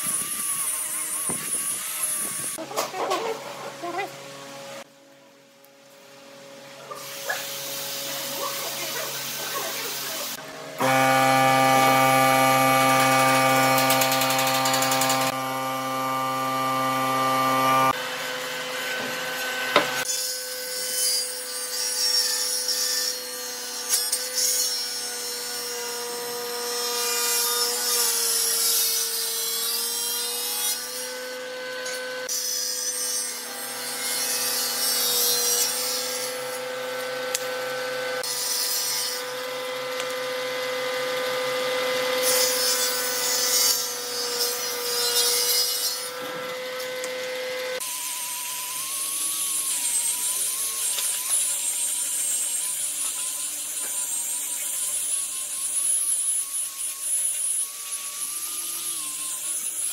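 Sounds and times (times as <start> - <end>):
table saw ripping wood: 10.3 - 25.7, 26.8 - 59.9
loud buzzing hum: 10.4 - 20.0.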